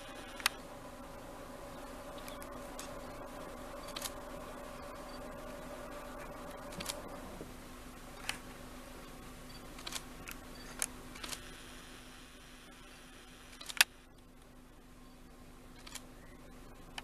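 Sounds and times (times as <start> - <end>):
steady droning hum: 0.0 - 17.0
camera shutters clicking: 3.9 - 4.2, 6.7 - 7.0, 9.8 - 11.5, 13.5 - 13.9, 15.8 - 16.1.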